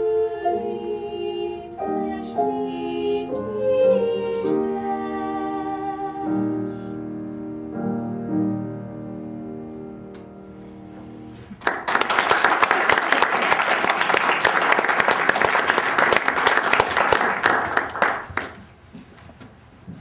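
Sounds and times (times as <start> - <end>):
piano chord: 0.0 - 11.6
audience clapping: 11.6 - 18.6.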